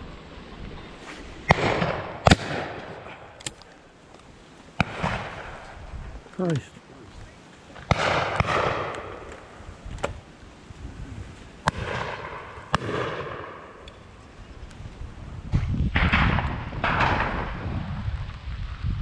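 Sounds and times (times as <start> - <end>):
loud bangs with rolling echoes: 1.5 - 3.1, 7.9 - 9.6, 11.7 - 13.8, 15.9 - 17.6
shotguns firing: 1.5 - 3.6, 4.8 - 5.6, 7.8 - 9.5, 11.6 - 13.8, 16.0 - 17.6.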